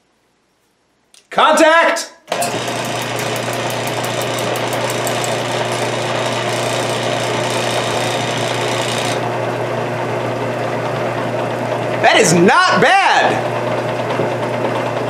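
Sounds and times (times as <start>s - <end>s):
lathe motor humming: 2.3s - 12.1s
fast regular ticking: 2.5s - 9.2s.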